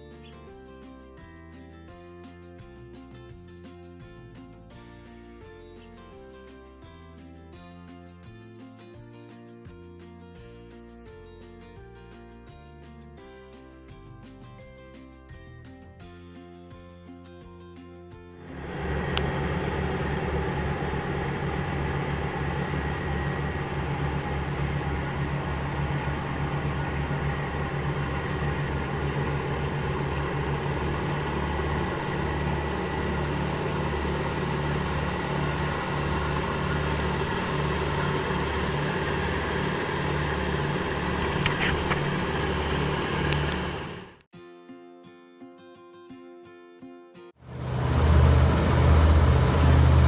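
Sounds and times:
boat engine throbbing: 18.5 - 44.2, 47.4 - 50.0
wind and water rushing: 47.5 - 50.0.

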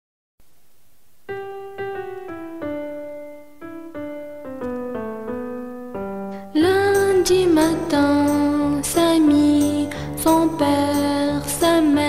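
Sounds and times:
keyboard playing simple melody: 1.2 - 12.0.

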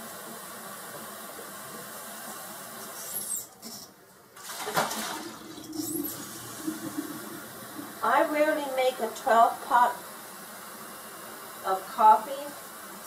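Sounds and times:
water running into sink: 1.4 - 9.7.

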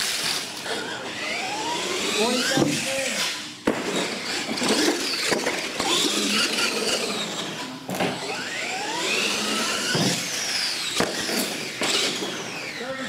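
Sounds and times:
electric motors whining: 0.0 - 13.0.

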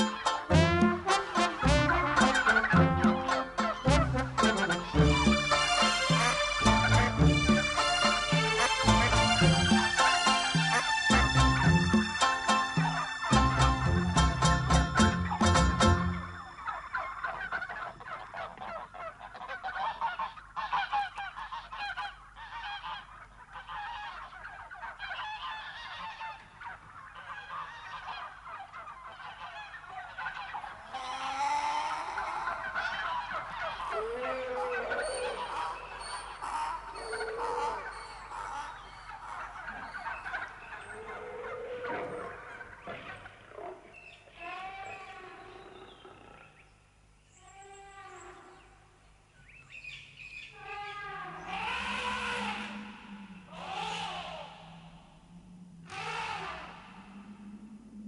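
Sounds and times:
birds honking and squawking: 0.0 - 46.7, 49.5 - 57.6
low drawn-out sliding bird calls: 50.7 - 58.0.

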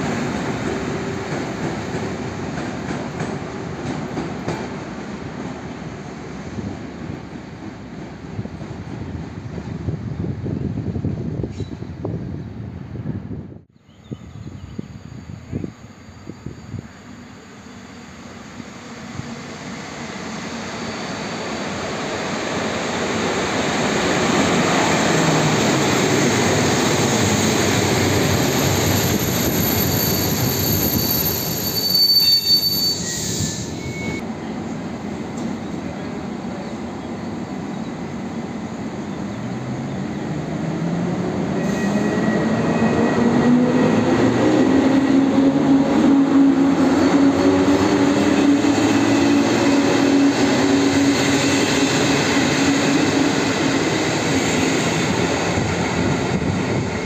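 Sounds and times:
train coaches rumbling: 0.0 - 13.6, 14.3 - 57.0
brake and wheel squeal: 20.6 - 21.6, 28.6 - 34.2, 41.6 - 43.1.

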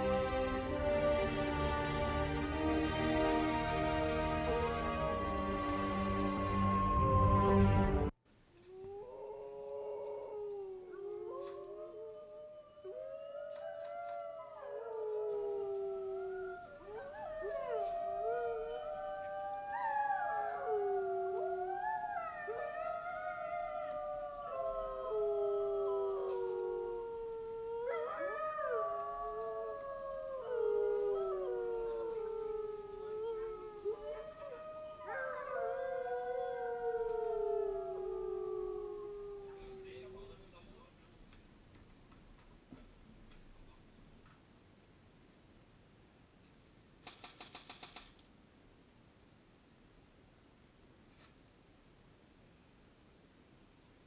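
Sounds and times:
wolves howling: 3.8 - 8.1, 8.8 - 40.4.

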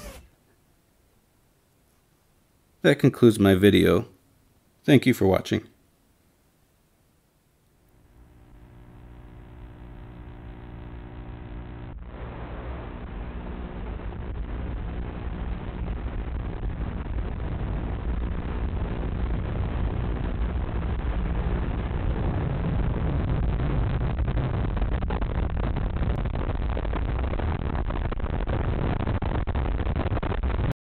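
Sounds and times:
low rumbling noise: 7.8 - 30.7.

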